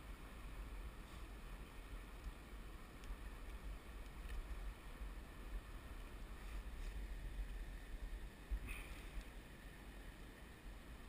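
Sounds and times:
flowing river: 0.0 - 11.0
wind: 0.0 - 11.0
light ticks: 2.1 - 4.6, 8.9 - 9.4.

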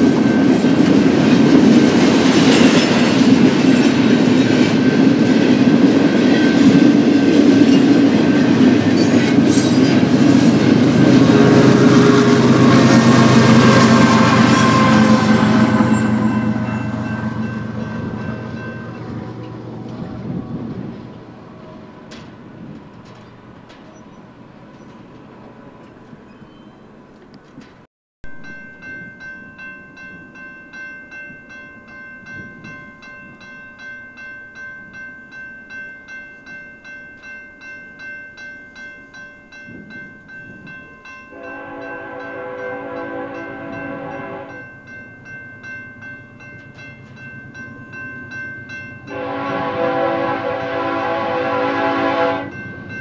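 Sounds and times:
freight train cars rolling past: 0.0 - 35.8, 38.8 - 53.0.

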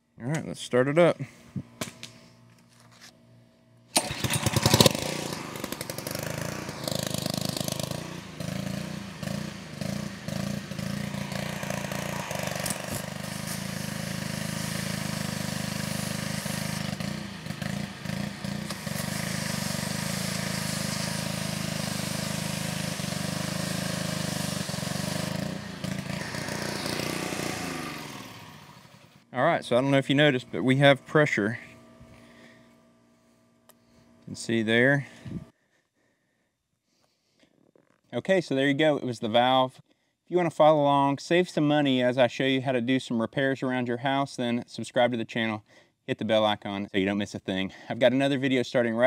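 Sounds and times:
pressure washer engine running: 3.9 - 35.5
high-pressure water spraying: 4.0 - 28.7.

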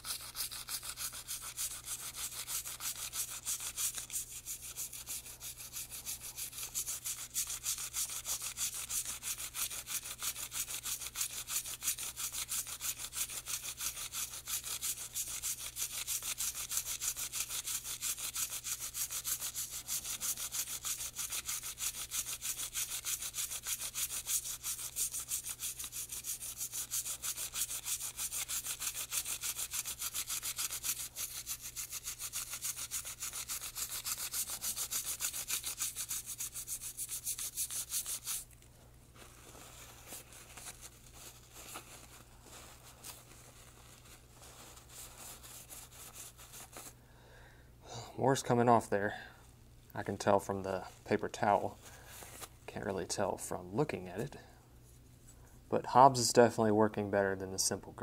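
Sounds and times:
toothbrush scrubbing metal part: 0.0 - 38.4
paper towel rubbing: 0.0 - 38.5, 39.1 - 47.0.

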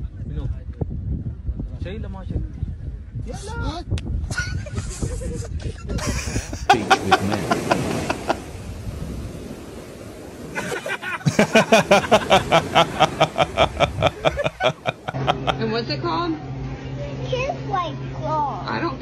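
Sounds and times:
person laughing heartily: 4.3 - 8.4, 10.6 - 15.6.

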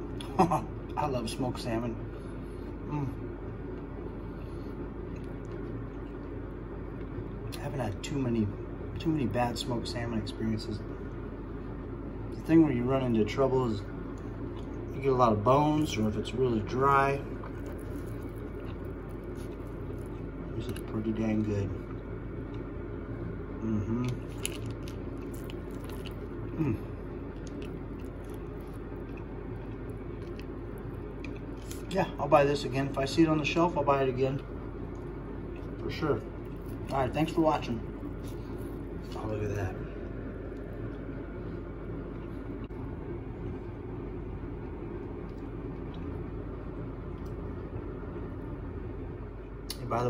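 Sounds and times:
motor running low rumble: 0.0 - 50.0
person chewing: 17.2 - 20.9, 23.6 - 32.0, 34.9 - 41.2.

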